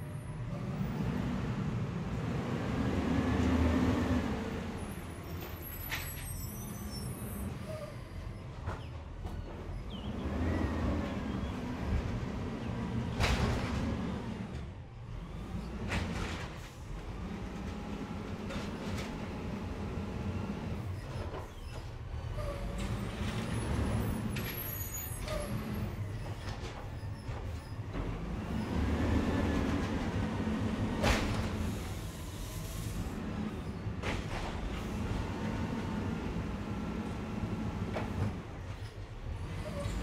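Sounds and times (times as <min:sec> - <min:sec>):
garbage truck engine running: 0:08.6 - 0:40.0.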